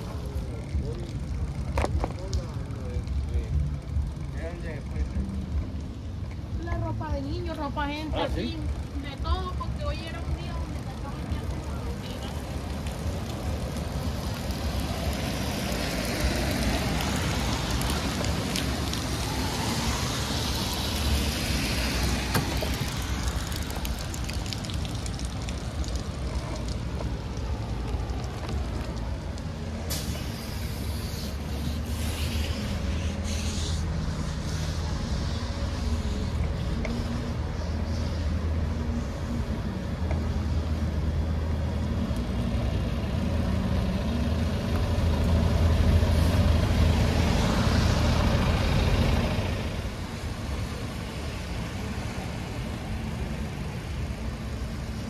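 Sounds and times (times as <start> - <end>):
tyre hiss on wet road: 11.6 - 55.0
air brake hiss: 29.9 - 35.0.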